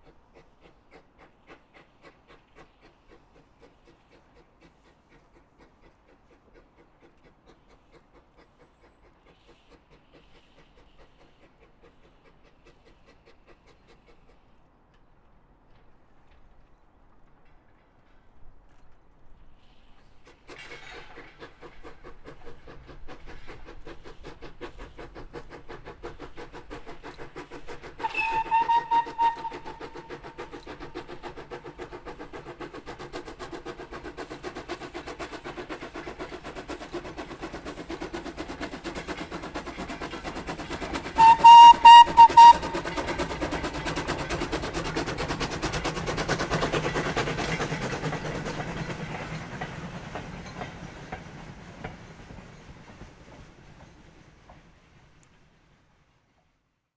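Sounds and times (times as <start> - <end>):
steam locomotive exhaust beating: 0.0 - 16.6, 19.4 - 56.6
steam whistle: 28.0 - 30.0, 41.2 - 42.9.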